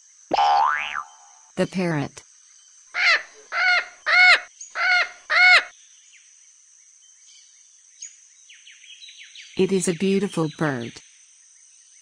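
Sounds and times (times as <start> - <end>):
parrot squawking: 3.0 - 5.7.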